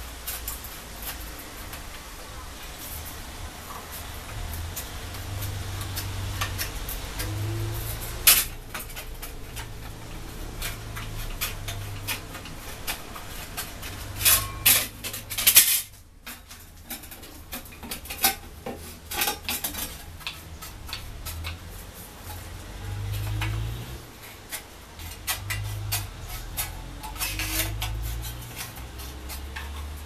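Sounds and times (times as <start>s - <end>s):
tin snips cutting sheet metal: 25.0s - 30.0s.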